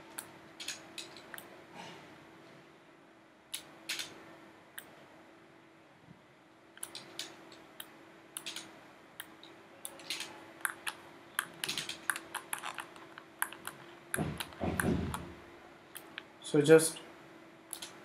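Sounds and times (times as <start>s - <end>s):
faint steady hum: 0.0s - 18.0s
keyboard typing: 9.9s - 15.2s.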